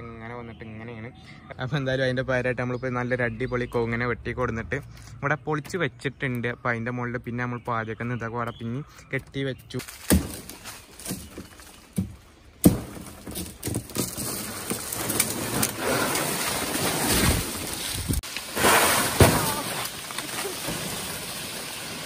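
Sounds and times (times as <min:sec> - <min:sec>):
palm fronds rustling: 0:09.8 - 0:22.0.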